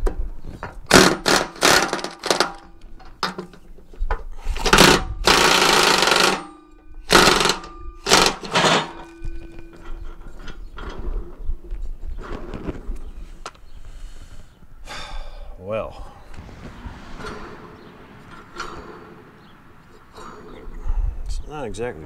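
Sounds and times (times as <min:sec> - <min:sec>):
impact wrench hammering: 0:00.9 - 0:02.6, 0:04.7 - 0:09.1.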